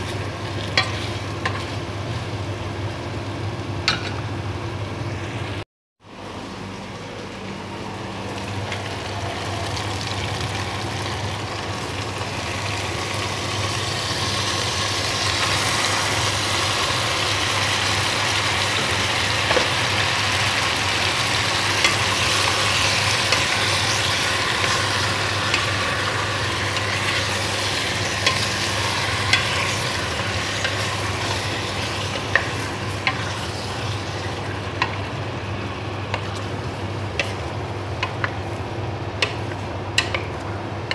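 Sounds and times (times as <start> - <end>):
food sizzling in a pot: 0.0 - 4.4, 8.2 - 40.9
spatula tapping on pot: 39.2 - 40.9.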